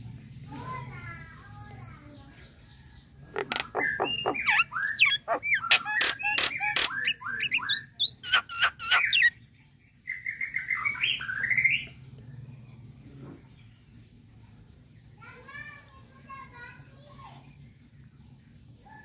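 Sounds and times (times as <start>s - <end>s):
myna calling: 3.2s - 9.4s.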